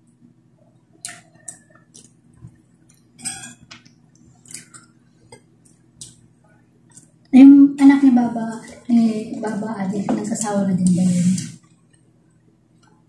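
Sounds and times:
chewing sounds: 1.0s - 6.2s.

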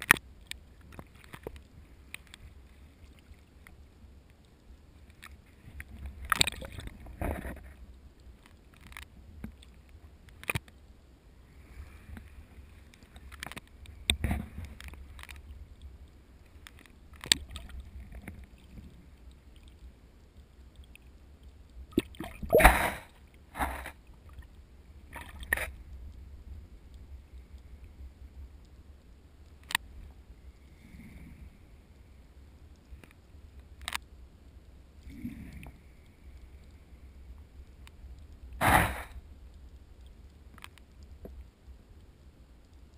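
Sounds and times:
underwater water rumble: 0.3s - 10.3s.

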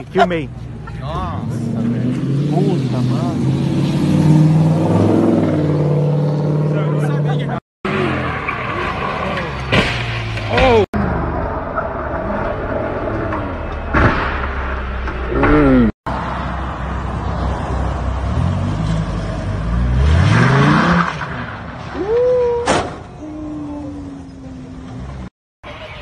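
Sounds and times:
sports car engines revving: 0.0s - 13.9s, 17.4s - 21.8s.

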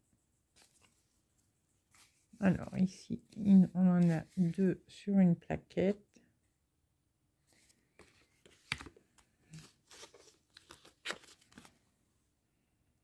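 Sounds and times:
packaging rustling and crinkling: 8.4s - 11.8s.

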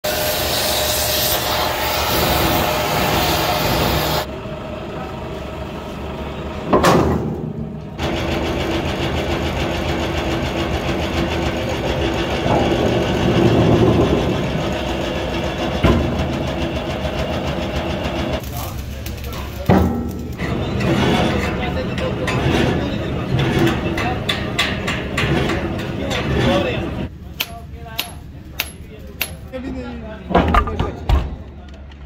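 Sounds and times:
hydraulic press humming: 0.3s - 18.4s.

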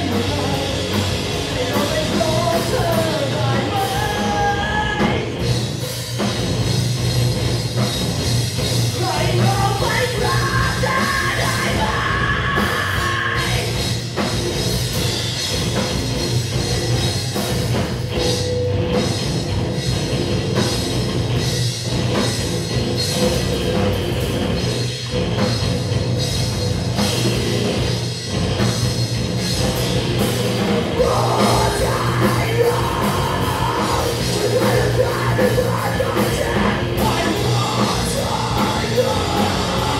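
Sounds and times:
bass guitar: 0.0s - 39.9s
drums: 0.0s - 39.9s
electric guitars: 0.0s - 39.9s
keyboard: 0.0s - 39.9s
person singing: 1.5s - 5.4s, 9.0s - 13.8s, 30.9s - 39.9s.

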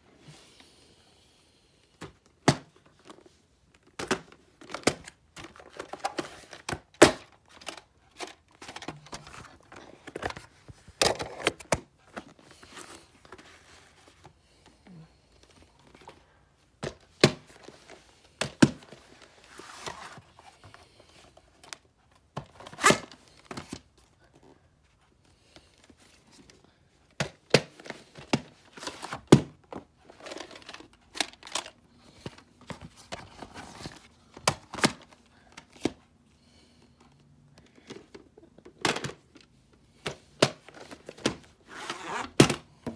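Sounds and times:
plastic cases clacking: 3.8s - 12.6s.

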